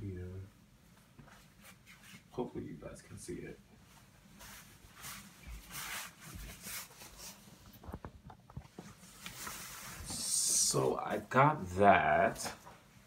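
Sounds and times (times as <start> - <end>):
rustling and light footsteps: 0.7 - 10.6.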